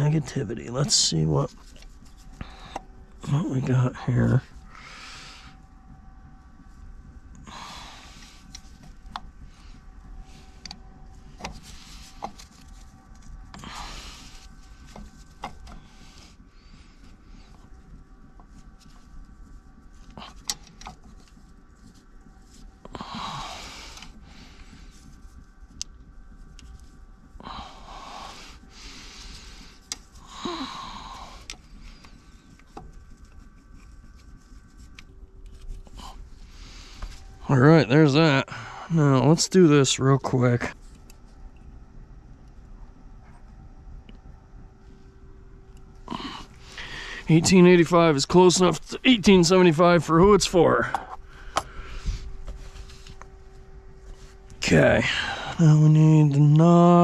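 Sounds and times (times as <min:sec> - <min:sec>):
steady low hum: 0:00.0 - 0:57.0
heavy breaths: 0:01.6 - 0:03.4, 0:04.0 - 0:05.6, 0:07.4 - 0:18.0, 0:22.8 - 0:25.4, 0:27.3 - 0:32.6, 0:38.4 - 0:39.0, 0:46.1 - 0:47.6, 0:50.8 - 0:53.2, 0:55.0 - 0:55.6.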